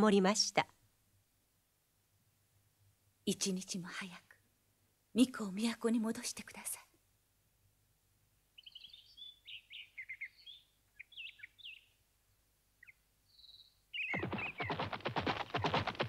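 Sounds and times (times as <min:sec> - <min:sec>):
birds chirping: 0:08.5 - 0:16.0
galloping horse hoofbeats: 0:14.1 - 0:16.0.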